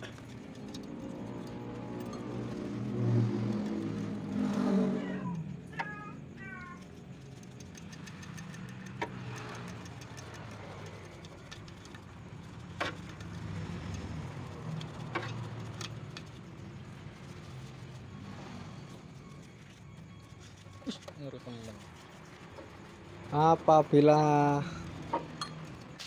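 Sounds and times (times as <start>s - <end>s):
metallic clicks and taps: 7.4s - 11.7s.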